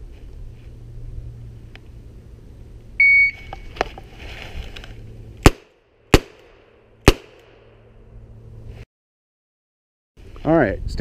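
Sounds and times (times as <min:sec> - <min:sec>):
shot timer beep: 0:03.0 - 0:03.5
revolver gunshots: 0:05.4 - 0:07.8.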